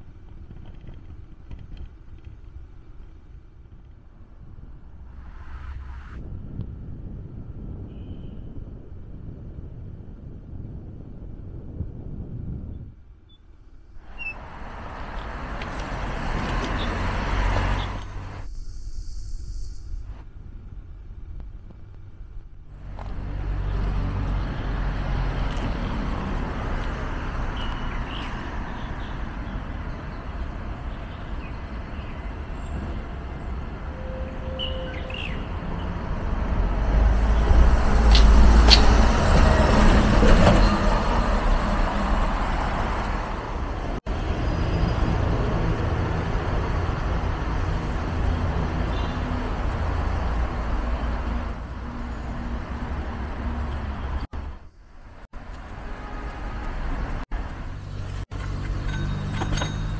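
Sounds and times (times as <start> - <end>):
road traffic rumble: 0.0 - 59.9
heavy vehicle passing: 14.4 - 18.5.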